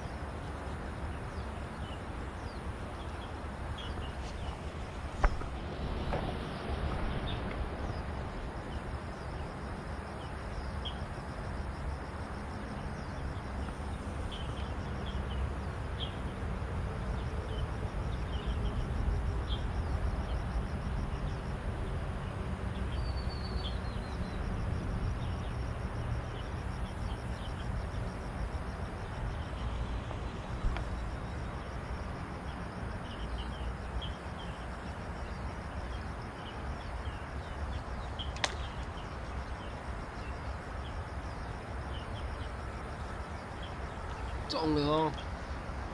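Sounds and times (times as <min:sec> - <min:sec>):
faint insect buzz: 0:01.3 - 0:16.2, 0:17.2 - 0:45.9
bird chirps: 0:44.1 - 0:45.6.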